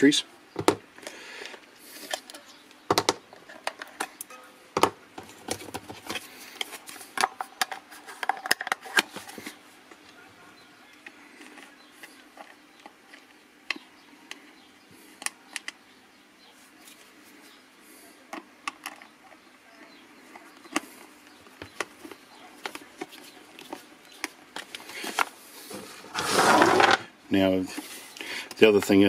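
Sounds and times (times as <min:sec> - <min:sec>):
batteries being handled: 0:05.1 - 0:10.2, 0:10.9 - 0:15.9, 0:16.7 - 0:27.0.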